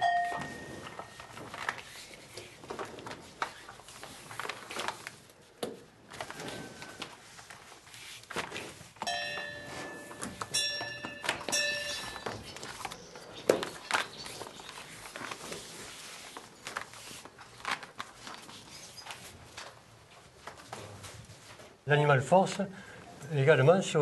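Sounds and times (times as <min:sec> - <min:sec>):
metallic ringing: 0:00.0 - 0:01.2, 0:09.1 - 0:12.7.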